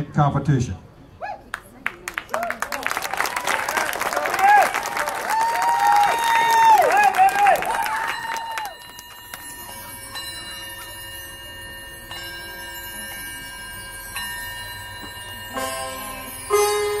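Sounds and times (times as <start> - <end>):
mallet percussion bell-like notes: 8.0 - 17.0
fuller chords: 15.5 - 17.0.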